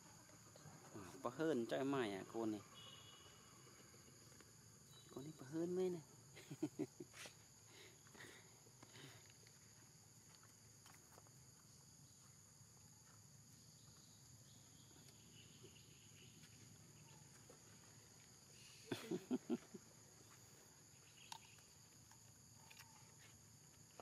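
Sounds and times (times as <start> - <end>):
forest insects droning: 0.0 - 24.0.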